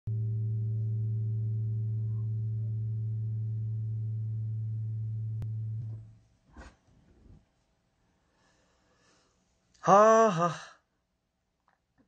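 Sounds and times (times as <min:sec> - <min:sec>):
low electronic keyboard note: 0:00.1 - 0:06.1.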